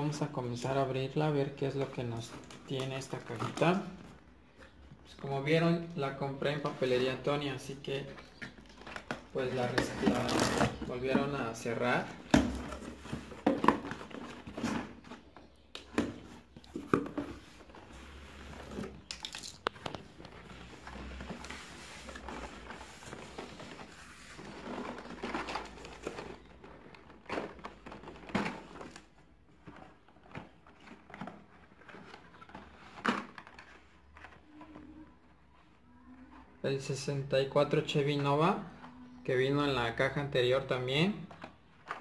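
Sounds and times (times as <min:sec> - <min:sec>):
cardboard and tape rustling: 0:01.4 - 0:36.7, 0:40.7 - 0:42.0
plastic packages rattling: 0:07.4 - 0:17.9, 0:18.5 - 0:21.5, 0:22.1 - 0:35.0.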